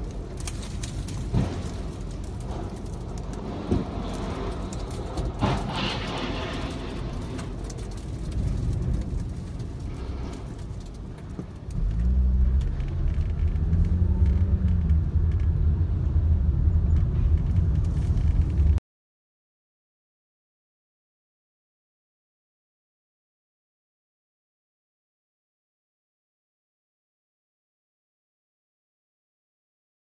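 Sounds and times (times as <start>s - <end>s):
car cabin rumble in wind: 6.4s - 18.8s.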